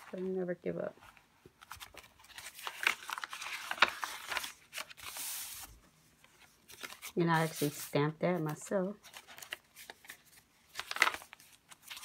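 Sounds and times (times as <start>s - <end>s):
paper pages rustling: 1.0s - 12.0s
paper sliding hiss: 4.0s - 5.8s.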